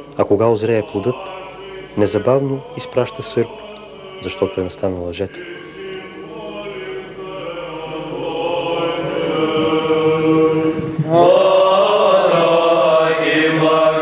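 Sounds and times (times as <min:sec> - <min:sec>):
men's voices chanting: 0:00.0 - 0:14.0.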